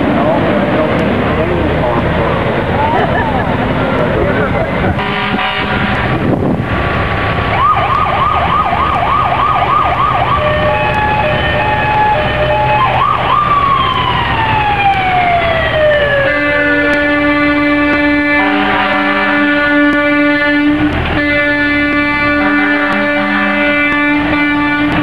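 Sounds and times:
air horn blast: 0:04.9 - 0:06.3, 0:16.1 - 0:25.0
horn tones: 0:04.9 - 0:06.3, 0:16.0 - 0:25.0
siren wail: 0:07.4 - 0:25.0
electronic siren yelping: 0:07.5 - 0:19.4.

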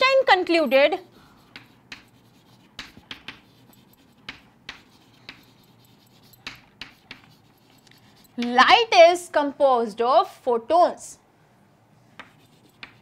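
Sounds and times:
chalk writing on chalkboard: 0:00.0 - 0:08.8, 0:12.1 - 0:13.0.

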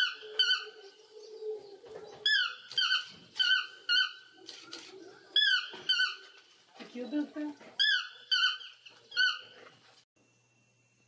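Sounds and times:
toucan yelping calls: 0:00.0 - 0:00.9, 0:02.2 - 0:04.6, 0:05.3 - 0:06.4, 0:07.8 - 0:09.6.

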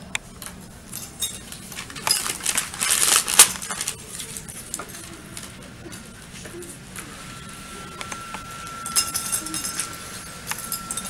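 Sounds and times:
rustling at a table: 0:00.4 - 0:05.6
small objects clattering and clinking: 0:01.0 - 0:04.8.

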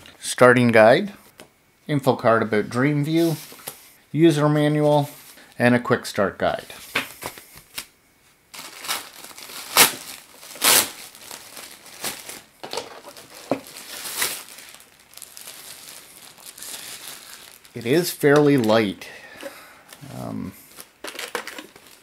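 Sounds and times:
plastic bag crinkling: 0:08.5 - 0:22.0.

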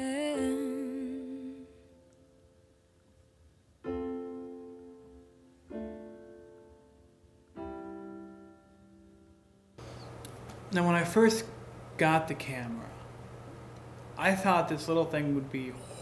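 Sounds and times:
keyboard playing piano chords: 0:00.0 - 0:09.8.

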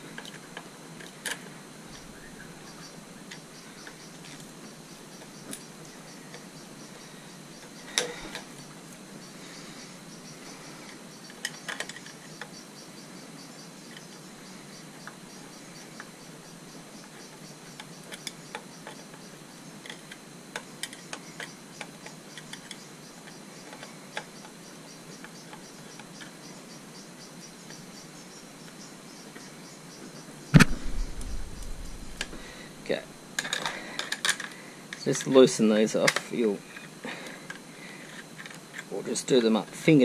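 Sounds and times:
faint pulsed high chirping: 0:01.8 - 0:19.8, 0:21.0 - 0:33.3.

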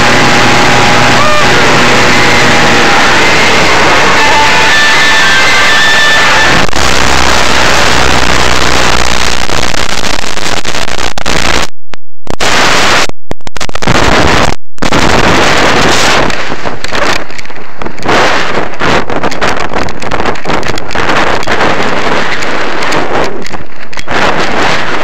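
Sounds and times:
aircraft engine low drone: 0:00.0 - 0:05.2
wind rushing over microphone: 0:13.8 - 0:25.0.

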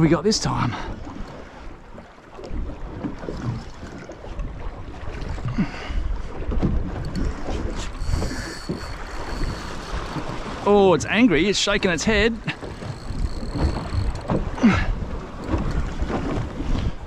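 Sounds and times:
wind buffeting microphone: 0:02.5 - 0:17.0
faint clicks: 0:07.0 - 0:10.5, 0:12.4 - 0:14.7
faint high whine: 0:07.8 - 0:10.5, 0:12.4 - 0:14.5.

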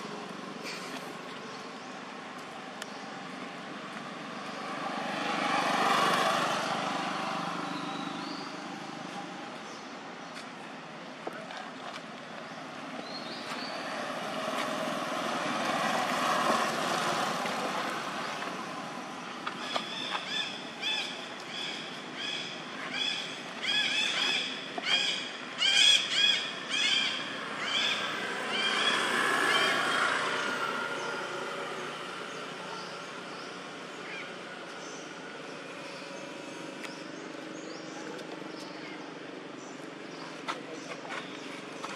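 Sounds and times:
vehicle passing: 0:02.1 - 0:09.7, 0:12.6 - 0:24.6, 0:25.3 - 0:38.5.

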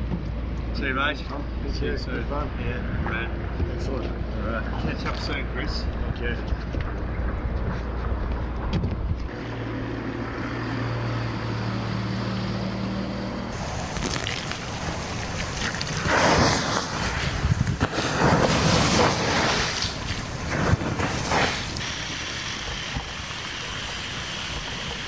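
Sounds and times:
outboard motor running: 0:09.3 - 0:12.2, 0:17.9 - 0:25.0
water hissing on hot ashes: 0:13.6 - 0:25.0.

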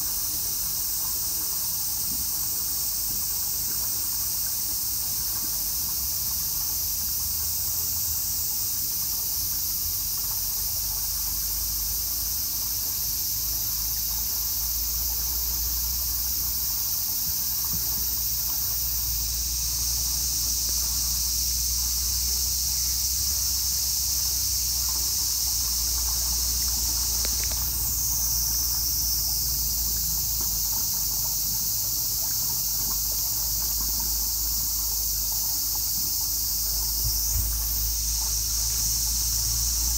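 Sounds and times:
insects shrilling: 0:09.4 - 0:39.9.

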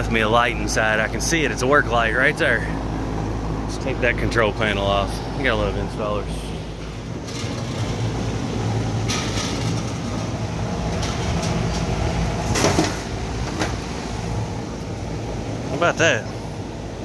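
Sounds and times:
low hum of hvac equipment: 0:00.0 - 0:17.0
sheet-metal panels clanking: 0:09.0 - 0:13.9.

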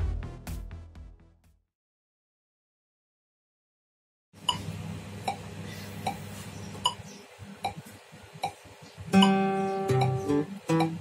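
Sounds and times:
sharp ticking clicks: 0:09.2 - 0:11.0.

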